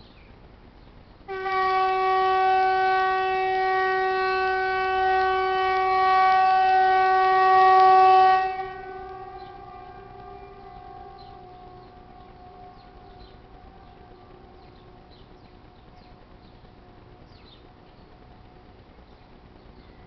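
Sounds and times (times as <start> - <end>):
loud horn-like tone: 1.3 - 17.7.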